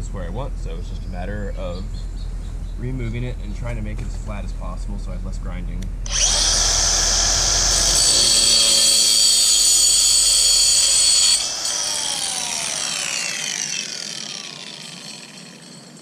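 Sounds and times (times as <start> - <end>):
angle grinder cutting metal: 6.1 - 16.0.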